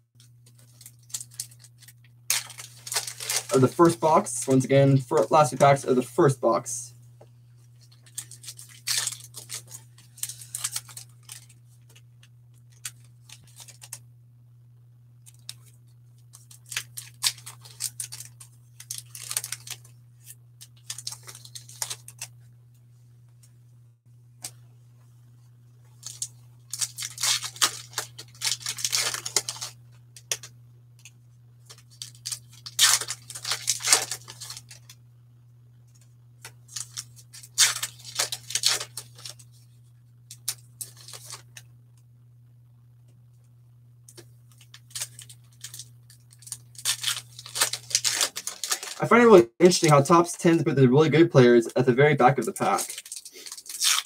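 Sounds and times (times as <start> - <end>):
steady low hum: 0.0 - 54.0
foil wrappers tearing and crinkling: 0.2 - 5.6, 7.8 - 12.0, 12.7 - 14.0, 15.2 - 22.3, 26.0 - 30.5, 31.6 - 35.0, 36.4 - 39.7, 40.3 - 41.6, 44.1 - 50.5, 52.3 - 54.0.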